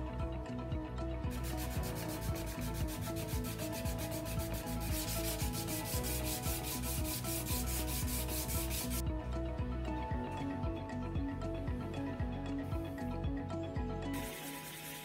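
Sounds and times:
soft background music: 0.0 - 15.0
wood sanding on sandpaper: 1.3 - 9.0, 14.2 - 15.0.

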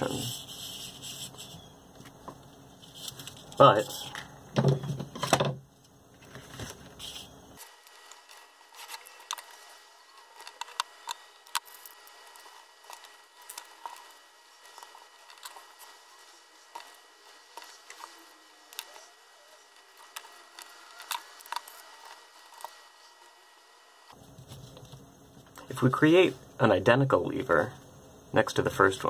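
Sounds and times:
paper rustling: 6.2 - 10.8.

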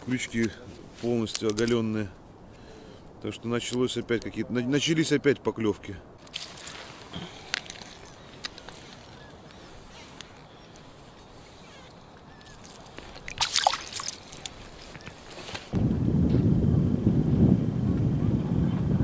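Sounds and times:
ice slush crunching: 12.6 - 14.8
wind buffeting microphone: 15.7 - 19.0.

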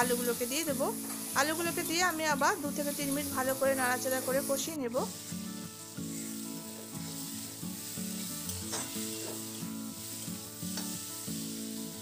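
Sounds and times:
food sizzling in hot oil: 0.0 - 12.0
spatula scraping a pan: 6.0 - 11.0.

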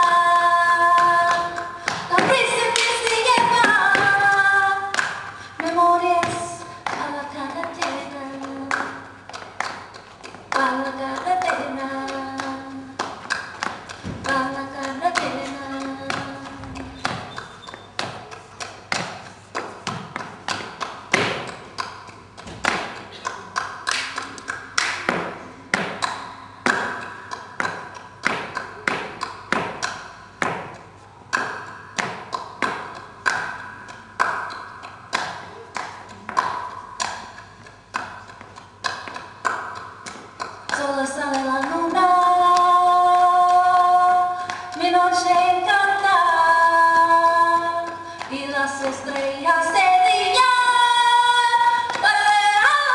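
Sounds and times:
woman singing flamenco: 0.0 - 18.7, 31.4 - 52.9
dance shoes striking floor: 13.0 - 23.1, 24.8 - 37.2.

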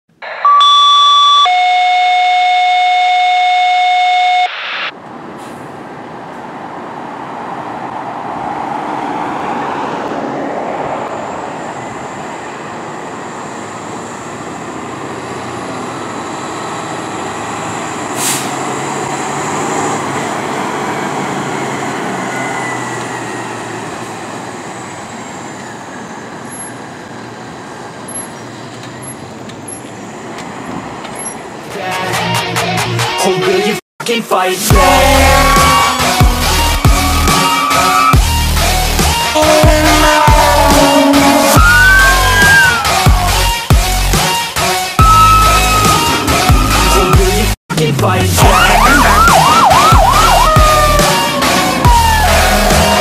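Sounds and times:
electronic tones: 0.2 - 4.9
fire engine driving past: 4.6 - 31.9, 34.7 - 53.0.

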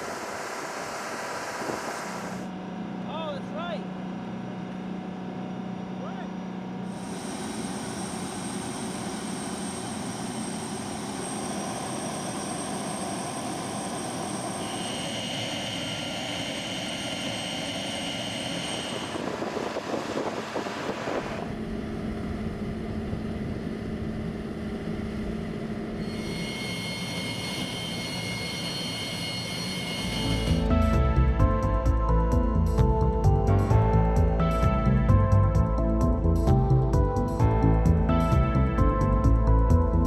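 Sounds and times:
jet engines whining: 0.0 - 2.5, 6.9 - 24.4, 25.1 - 31.1
deep rumble: 30.5 - 40.0.

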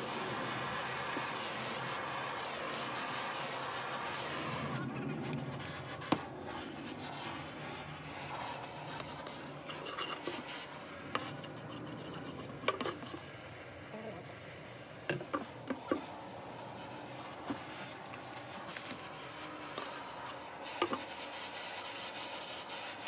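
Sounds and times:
steady hiss: 0.0 - 23.0
beeswax rubbing on wooden board: 1.8 - 13.3, 16.7 - 23.0.

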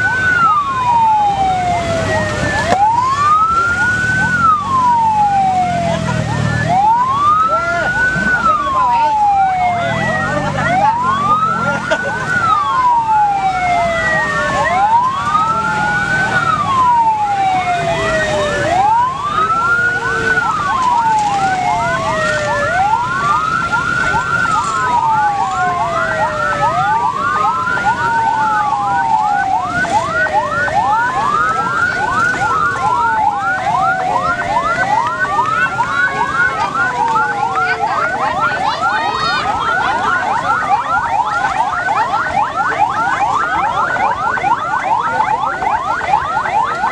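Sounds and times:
vehicle sirens wailing and yelping: 0.0 - 46.9.

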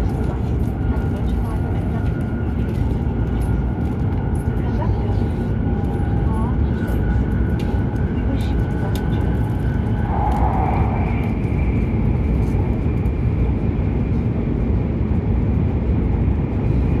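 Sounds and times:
train rumble: 0.0 - 17.0.

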